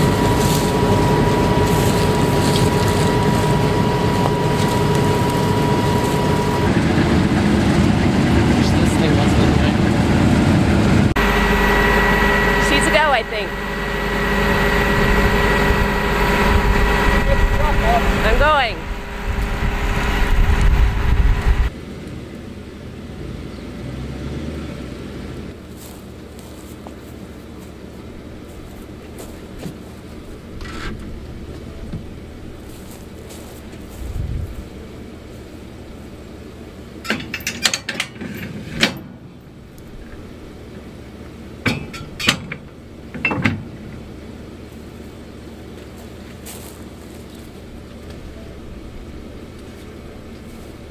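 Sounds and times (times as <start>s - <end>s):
low rumble: 0.0s - 23.5s, 30.3s - 34.9s
combine harvester rumbling: 0.0s - 50.9s
wind on microphone: 15.0s - 21.7s, 33.9s - 34.8s.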